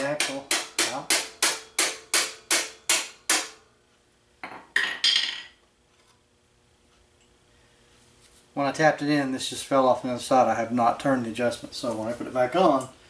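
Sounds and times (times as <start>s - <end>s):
hammer tapping on metal: 0.0s - 3.6s.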